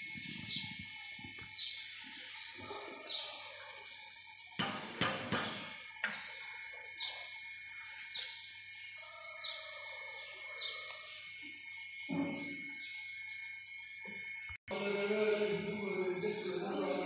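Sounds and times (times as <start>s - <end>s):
bird chirping: 0.0s - 4.6s, 5.3s - 13.5s
steady high-pitched whine: 0.0s - 17.0s
sharp knocks: 4.6s - 6.2s.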